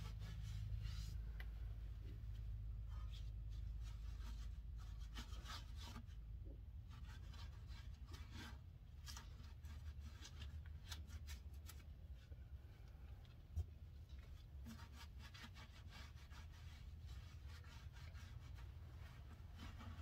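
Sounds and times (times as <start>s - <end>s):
cloth rag rubbing metal: 0.0s - 1.4s, 14.4s - 20.0s
low steady hum: 0.0s - 20.0s.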